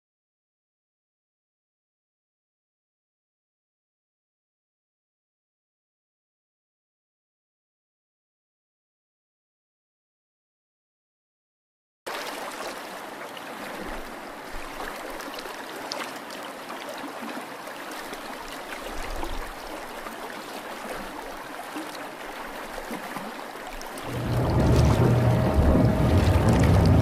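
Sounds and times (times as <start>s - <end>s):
water trickling with drips: 12.1s - 27.0s.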